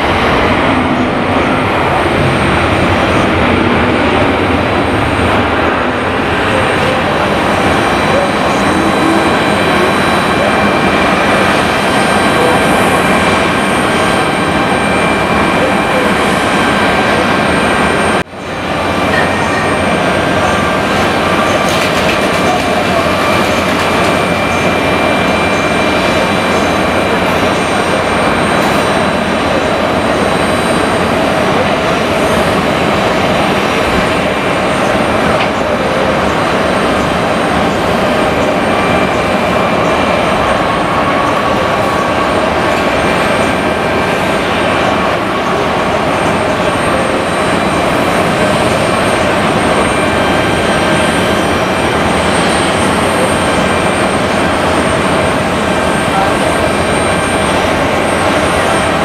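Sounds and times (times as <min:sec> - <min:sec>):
jet engines running: 0:00.0 - 0:59.0.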